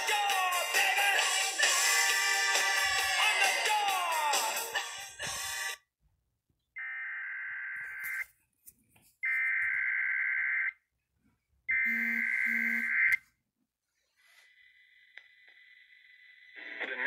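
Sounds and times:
music: 0.0 - 5.8.

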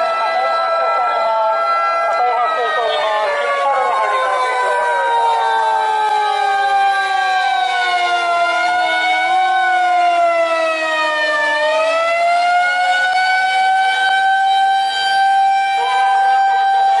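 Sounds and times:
siren wailing: 0.0 - 17.0.

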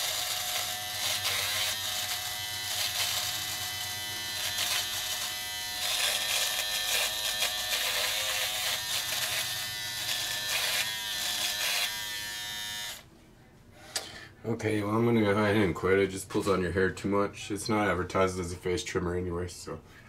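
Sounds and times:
electric trimmer buzzing: 0.0 - 13.0.

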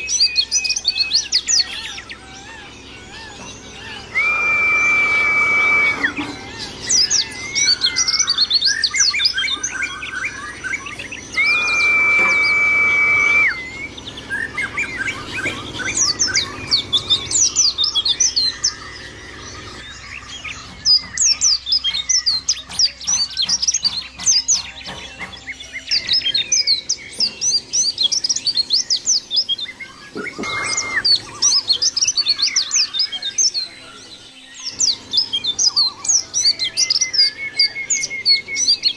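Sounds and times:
bird twittering song: 0.0 - 38.9
long flat whistled tone: 4.0 - 6.3, 10.2 - 14.0, 30.2 - 31.4.

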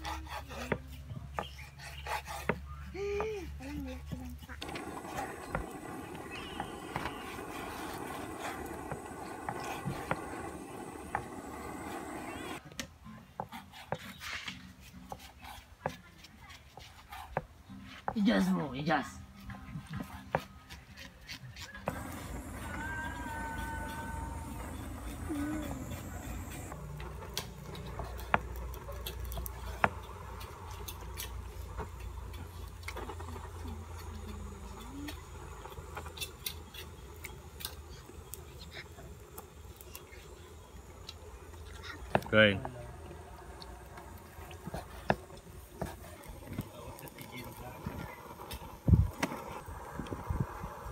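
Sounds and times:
steady rumbling noise: 4.6 - 12.6, 21.9 - 27.0, 42.0 - 50.9.

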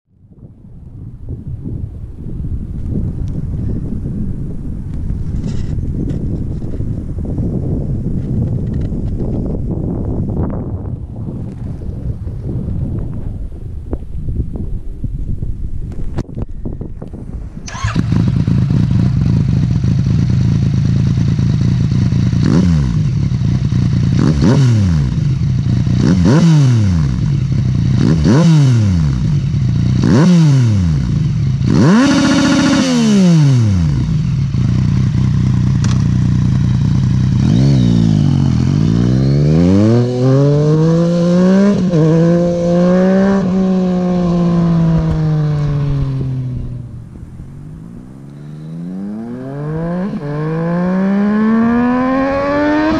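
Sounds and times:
motorcycle engine revving: 17.6 - 52.9.

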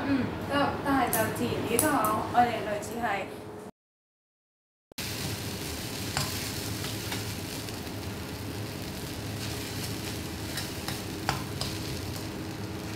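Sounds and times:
noodles sizzling in wok: 5.0 - 12.9.

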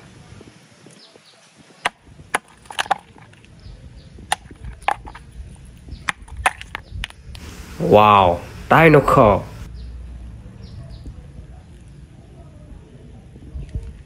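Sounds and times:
ice knocking against concrete: 1.8 - 3.5, 4.3 - 5.3, 6.0 - 6.8.

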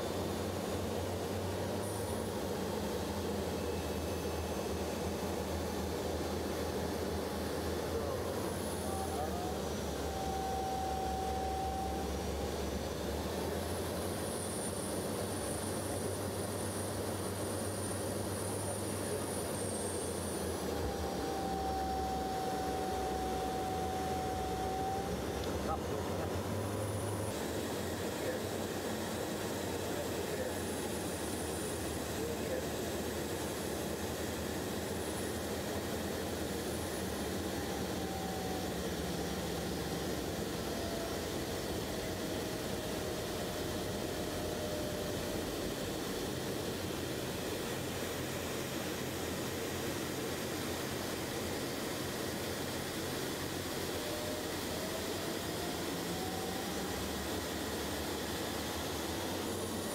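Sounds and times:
steady mid-pitched tone: 0.0 - 49.8
aircraft engines droning: 0.0 - 59.9
faint high whine: 0.0 - 59.9.

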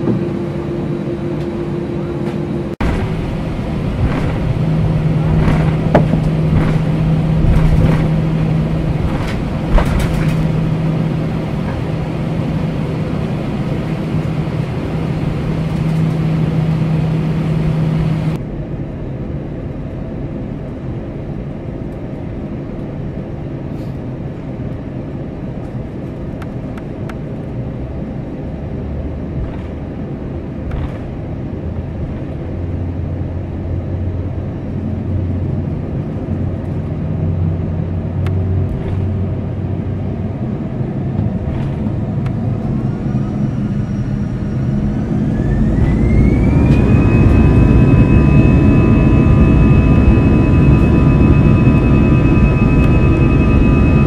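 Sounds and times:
jet engine fan whine: 0.0 - 54.0
jet engines heard from cabin: 0.0 - 54.0.

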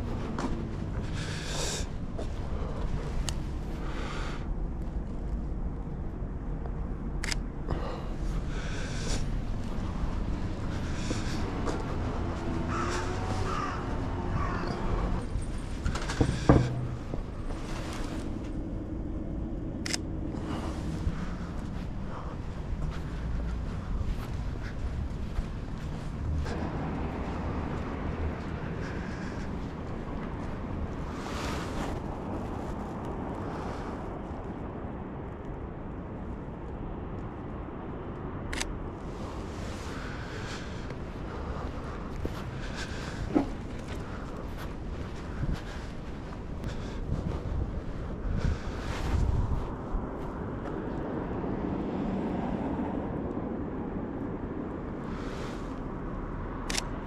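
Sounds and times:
low traffic hum: 0.0 - 57.0
harsh bird calls: 10.8 - 15.2.

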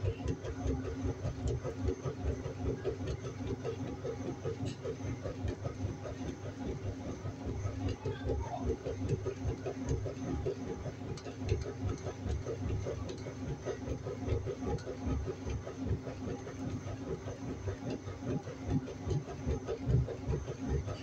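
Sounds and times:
washing machine churning: 0.0 - 21.0.

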